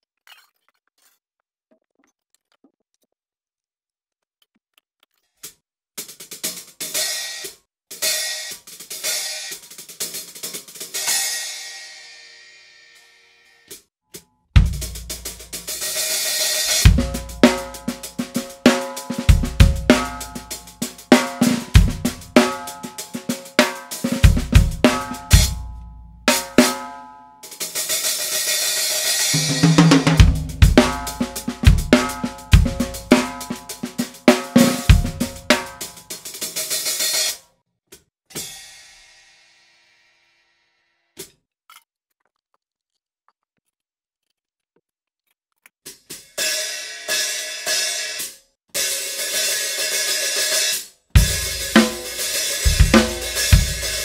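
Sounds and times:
drum kit groove: 6.0 - 11.7, 14.6 - 37.4, 38.3 - 38.9, 45.9 - 54.0
open hi-hat wash: 14.6 - 25.6, 51.2 - 54.0.

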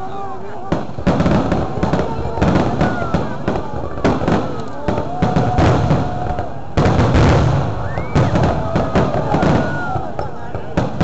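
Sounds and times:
fireworks bangs and crackles: 0.0 - 11.0
heavy firework boom: 0.7 - 11.0
firework whistles: 5.3 - 10.4.

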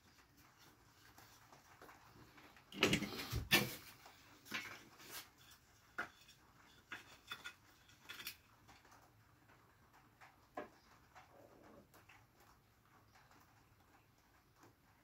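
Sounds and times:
scraping rustle: 0.1 - 9.0.

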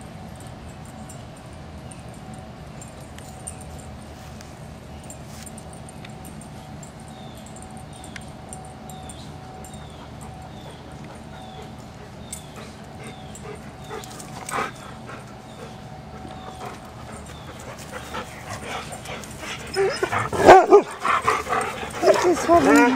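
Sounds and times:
dogs whimpering and yipping: 8.9 - 22.9.

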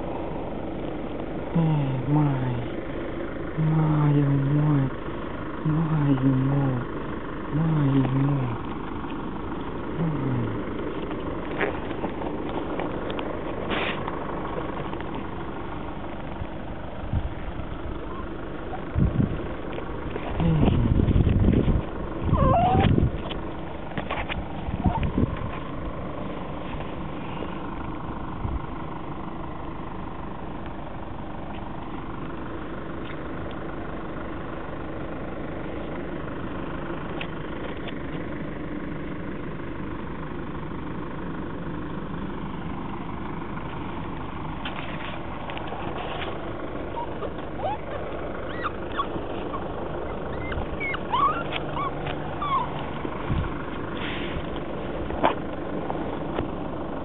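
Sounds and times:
low mechanical hum: 0.0 - 57.0
puppy squeaking and whimpering: 22.2 - 23.3, 24.8 - 25.2, 45.8 - 53.0.

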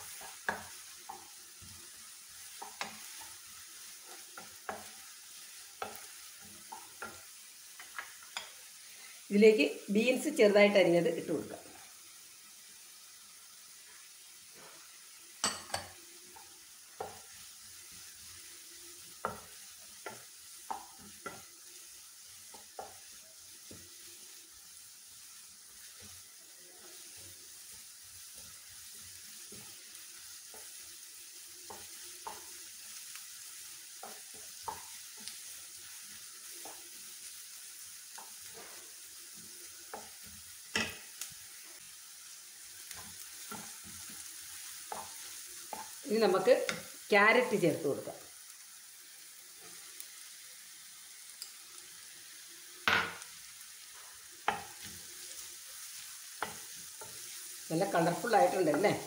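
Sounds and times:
spatula tapping and scraping pan: 0.0 - 8.6, 15.4 - 18.1, 19.1 - 21.7, 22.3 - 24.1, 25.8 - 37.0, 37.9 - 41.4, 42.8 - 46.0, 54.0 - 55.4, 56.0 - 57.4
vegetables sizzling in pan: 0.0 - 59.0.

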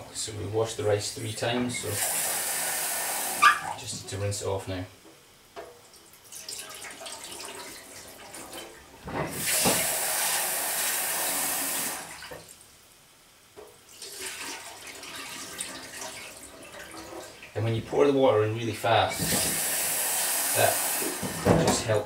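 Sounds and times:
rinse water poured into sink: 6.3 - 12.4, 13.9 - 17.5.

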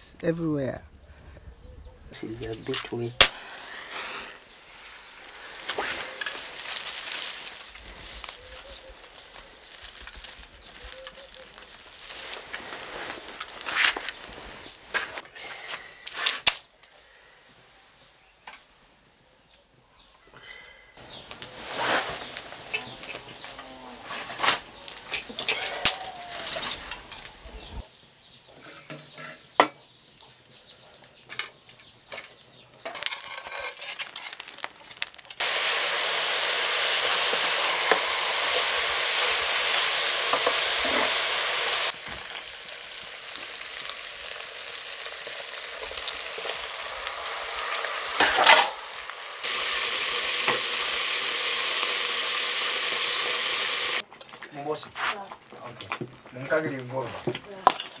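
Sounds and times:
meat sizzling in a metal pot: 5.6 - 14.8, 21.0 - 29.9, 34.0 - 58.0.

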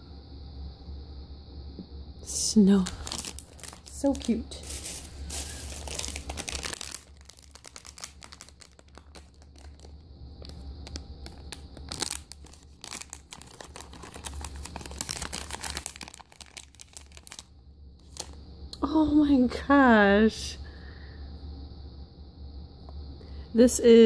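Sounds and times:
plastic bag crinkling: 2.6 - 18.4.

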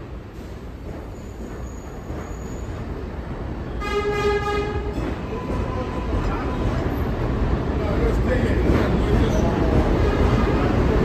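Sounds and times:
subway train wheels rumbling: 0.0 - 11.0
train horn: 3.8 - 5.0.

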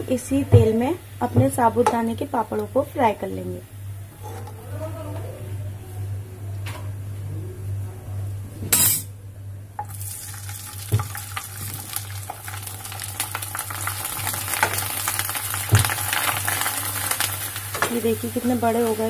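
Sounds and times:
steady low hum: 0.0 - 11.4
food deep-frying in hot oil: 9.8 - 19.0.

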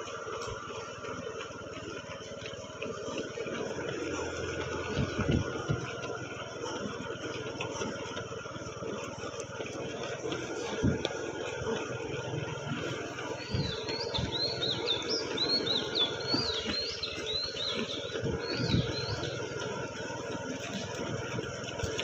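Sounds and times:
footfalls on asphalt: 0.0 - 11.9
steady background hum: 0.0 - 22.0
birds whistling calls: 12.8 - 20.2.

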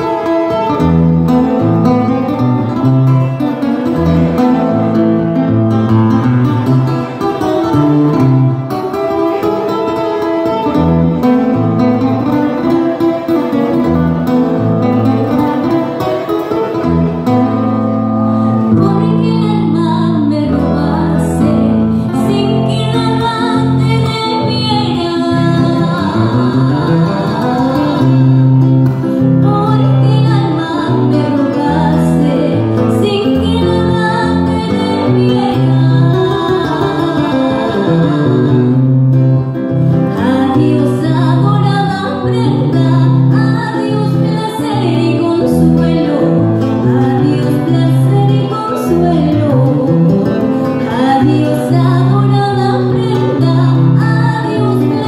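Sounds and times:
strummed acoustic guitar: 0.0 - 55.0
woman singing: 18.4 - 39.4, 40.1 - 55.0.

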